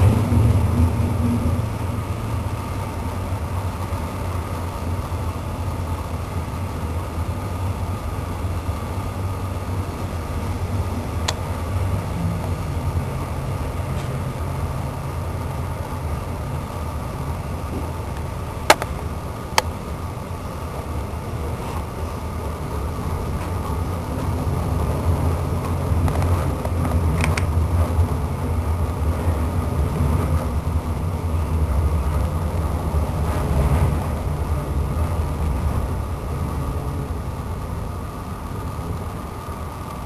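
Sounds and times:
train rumble: 0.0 - 40.0
sharp clicks: 18.7 - 19.0.

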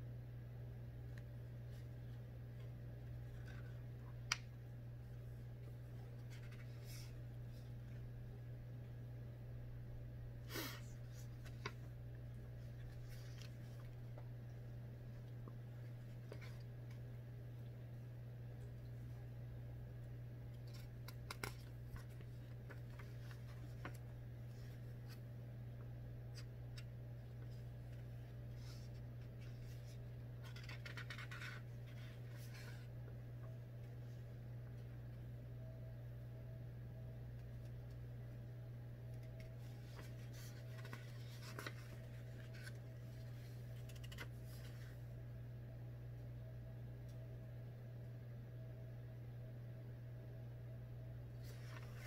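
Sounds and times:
steady low hum: 0.0 - 52.0
paper pages rustling: 1.7 - 4.4, 5.6 - 7.8, 11.0 - 14.3, 20.5 - 25.2, 26.3 - 32.9, 39.2 - 45.0, 51.4 - 52.0.

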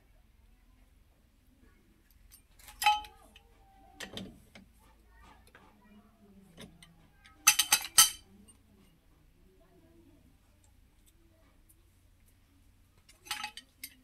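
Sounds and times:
metal tools clinking: 2.3 - 3.4, 7.4 - 8.2, 13.1 - 14.0.

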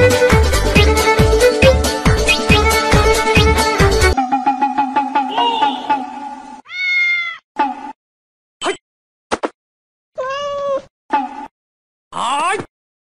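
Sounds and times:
cat meowing: 6.6 - 7.4, 10.2 - 10.9.

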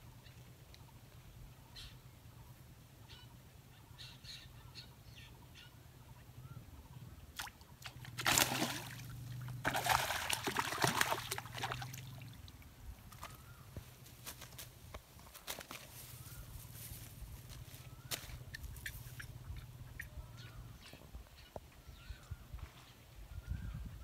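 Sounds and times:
low steady hum: 0.0 - 24.0
fish splashing in water: 7.4 - 13.3.

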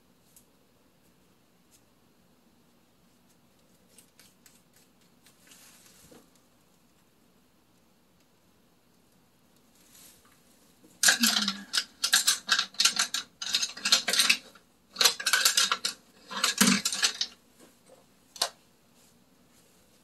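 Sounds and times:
small hard objects clattering: 11.0 - 17.4.

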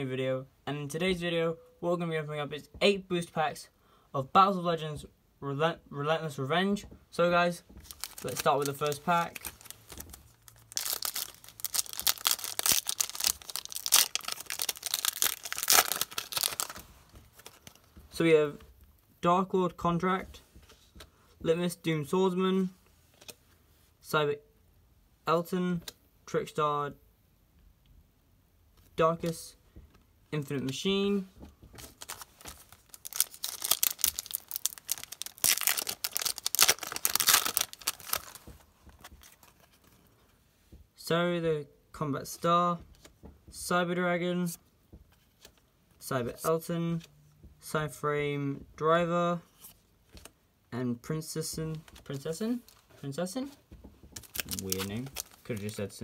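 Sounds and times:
cards rustling: 7.5 - 18.0, 30.4 - 40.4, 51.4 - 56.0
foil wrapper tearing and crinkling: 7.9 - 16.8, 32.0 - 38.5, 54.2 - 55.8.

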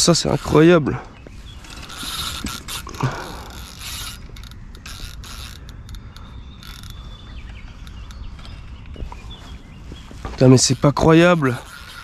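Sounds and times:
fishing reel whirring: 1.5 - 8.7, 10.5 - 12.0
reel ratchet clicks: 1.6 - 8.5, 10.6 - 12.0.

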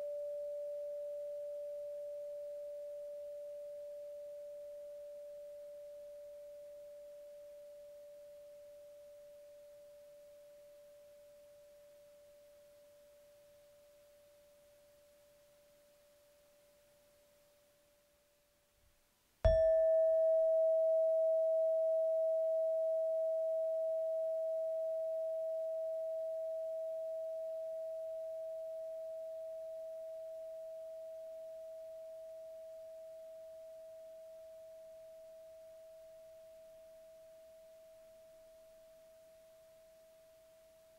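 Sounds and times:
metal chime ringing: 19.5 - 21.6
mallet striking chime: 19.5 - 22.9.

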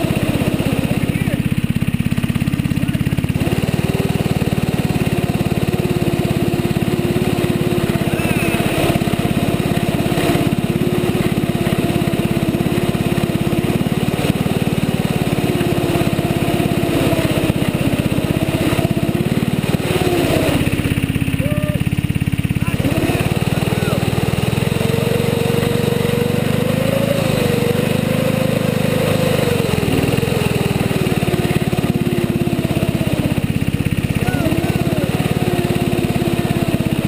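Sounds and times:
small snowmobile engine running: 0.0 - 37.0.

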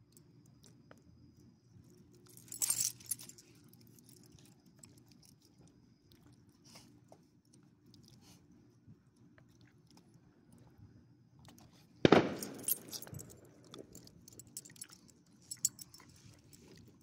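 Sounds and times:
dog chewing and licking: 3.8 - 10.8.

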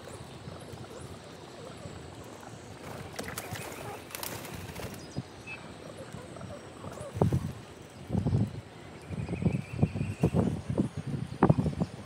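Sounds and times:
outdoor background hiss: 0.0 - 12.0
pigeon wings flapping: 2.8 - 5.1.

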